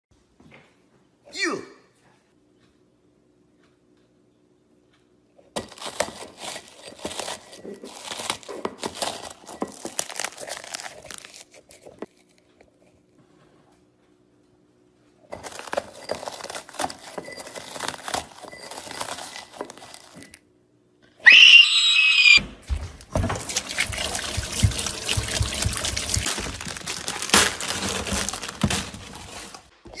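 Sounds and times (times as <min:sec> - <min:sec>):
crunchy chewing of chips: 0:05.5 - 0:13.2.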